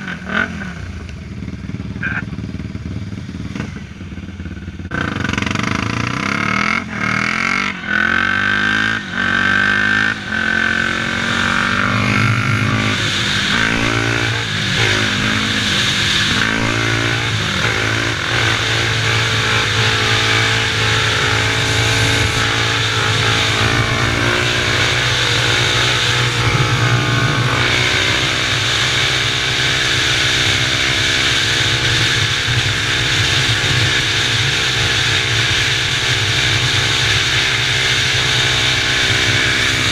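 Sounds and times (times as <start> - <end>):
quad engine accelerating: 0.0 - 39.9
rushing air noise: 10.1 - 29.0.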